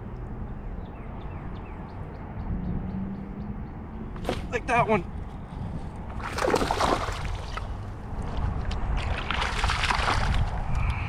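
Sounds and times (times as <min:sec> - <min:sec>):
wind on microphone: 0:05.1 - 0:11.0
water splashing at kayak: 0:06.2 - 0:07.7, 0:09.0 - 0:10.6.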